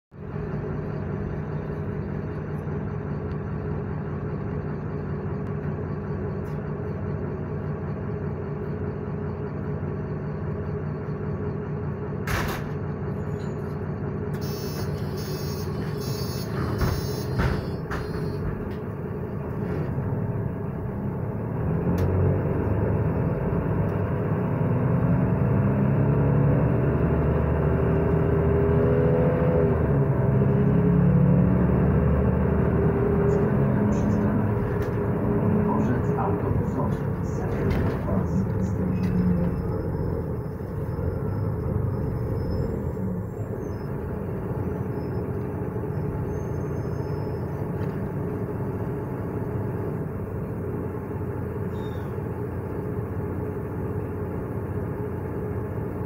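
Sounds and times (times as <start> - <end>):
bus engine idling: 0.1 - 26.2, 29.2 - 56.0
bus engine accelerating: 0.1 - 56.0.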